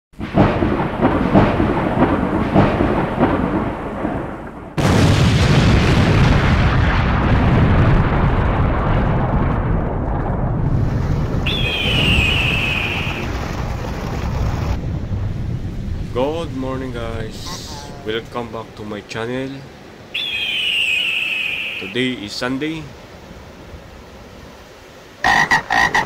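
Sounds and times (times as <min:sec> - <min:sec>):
thunder clap rumbling: 0:00.2 - 0:18.8
thunder crackling: 0:00.2 - 0:18.8.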